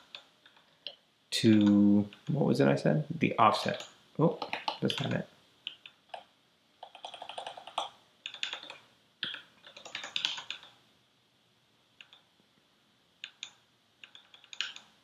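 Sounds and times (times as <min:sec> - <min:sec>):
keyboard typing: 0:01.4 - 0:02.4, 0:03.6 - 0:10.8, 0:13.2 - 0:15.0.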